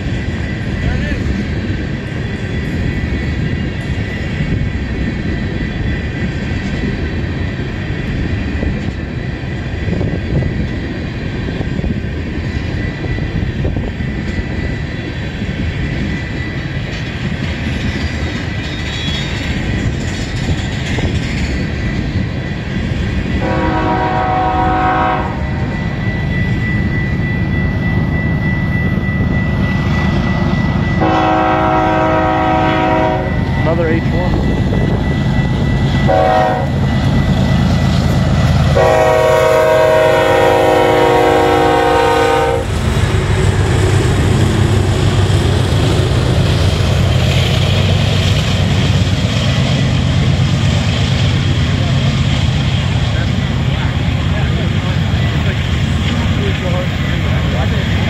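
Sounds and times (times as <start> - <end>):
wheels rumbling on rail: 0.0 - 58.0
locomotive air horn blasts: 23.4 - 25.6, 31.0 - 33.4, 36.1 - 36.8, 38.8 - 42.7.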